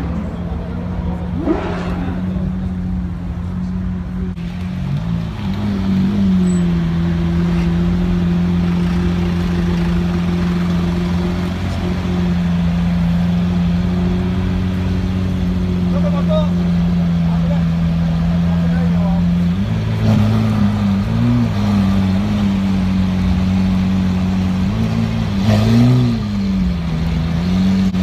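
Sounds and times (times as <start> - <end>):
car engine at low revs: 0.0 - 28.0.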